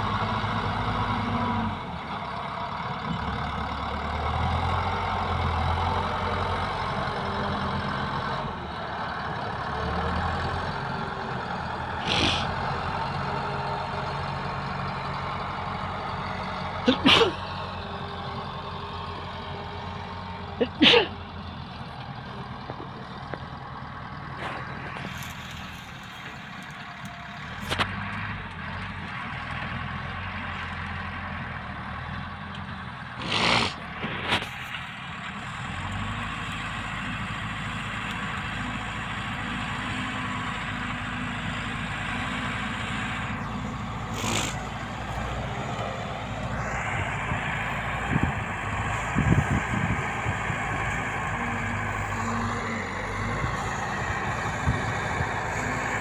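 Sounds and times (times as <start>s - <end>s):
motor grader diesel engine: 0.0s - 56.0s
short bursts of noise: 33.2s - 34.5s.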